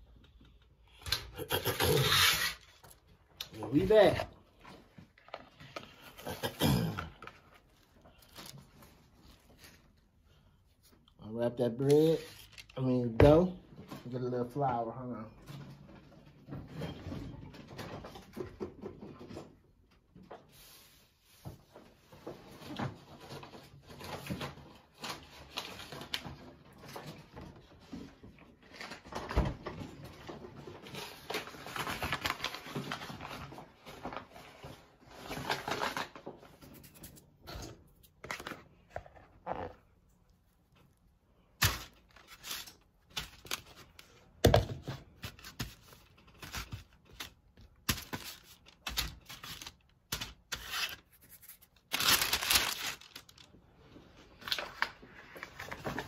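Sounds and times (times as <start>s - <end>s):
paper sheets rustling: 41.4s - 44.2s, 44.9s - 56.0s
plastic bag crinkling: 48.0s - 53.6s.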